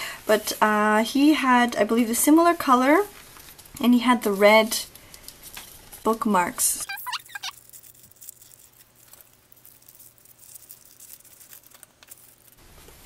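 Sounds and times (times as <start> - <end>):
paper rustling and crinkling: 3.0 - 6.2, 6.9 - 13.0.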